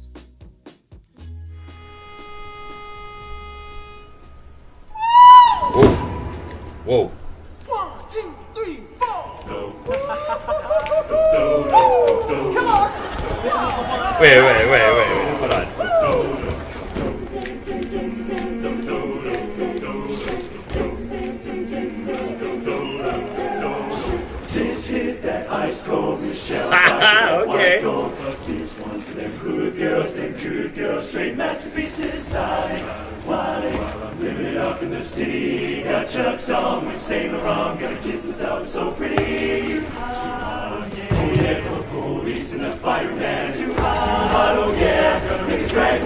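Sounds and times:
a cappella chorus singing: 0:09.4 - 0:46.0.

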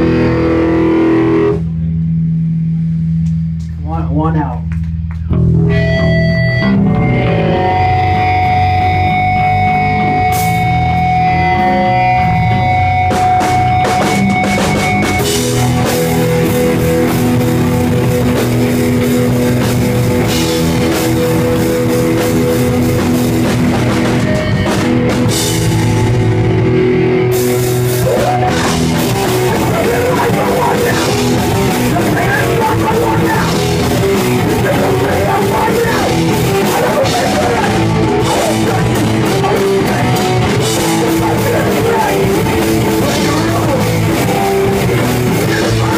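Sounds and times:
rock band playing live: 0:00.0 - 0:45.9.

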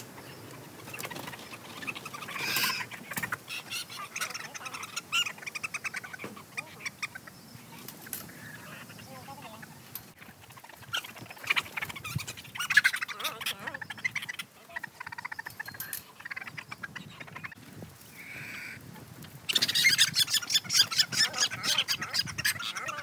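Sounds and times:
chickens squawking: 0:00.0 - 0:18.8, 0:19.4 - 0:23.0.

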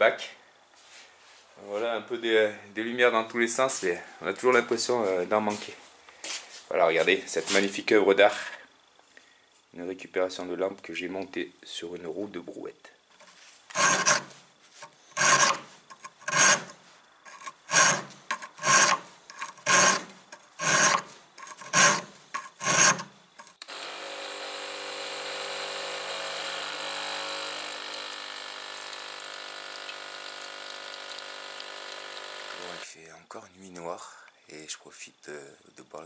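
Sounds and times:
hand file rasping: 0:13.2 - 0:23.6.

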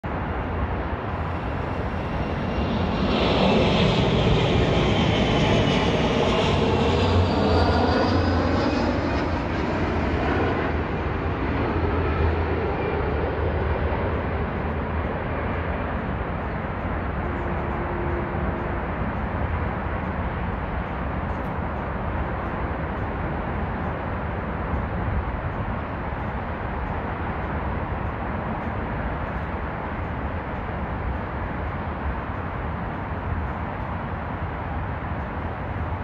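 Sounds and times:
jet airliner passing overhead: 0:00.0 - 0:36.0
jet engine whine: 0:00.0 - 0:36.0.

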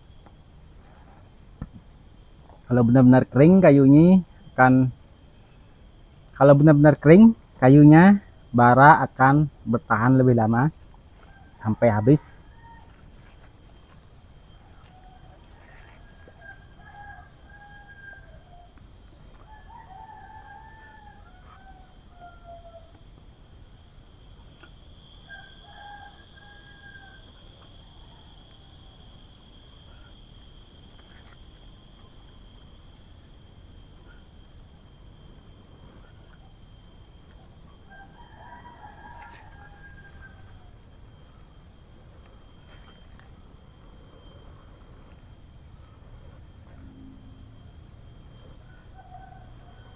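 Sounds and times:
insects droning: 0:00.0 - 0:49.9
rapid insect chirps: 0:00.0 - 0:49.9
roosters crowing faintly: 0:10.9 - 0:23.0, 0:37.3 - 0:45.2.

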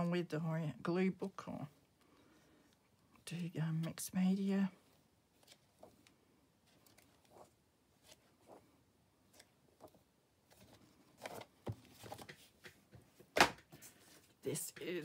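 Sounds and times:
paper pages turning: 0:04.9 - 0:12.8
book knocking on table: 0:13.4 - 0:13.6.

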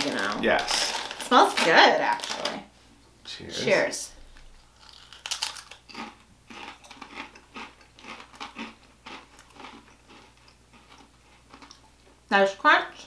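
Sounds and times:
people crunching potato chips: 0:00.0 - 0:02.6, 0:04.4 - 0:11.9.

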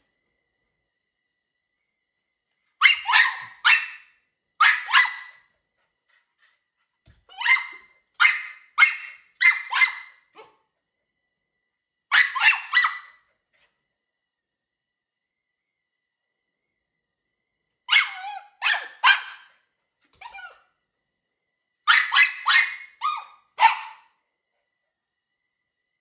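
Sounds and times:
small dog barking high-pitched: 0:02.8 - 0:05.5, 0:07.3 - 0:10.6, 0:12.1 - 0:13.2, 0:17.9 - 0:19.5, 0:20.2 - 0:20.6, 0:21.9 - 0:24.2.

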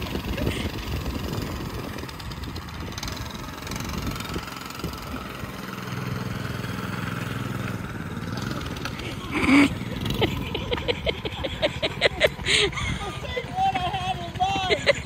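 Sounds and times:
small motorbike engine running: 0:00.0 - 0:15.0.

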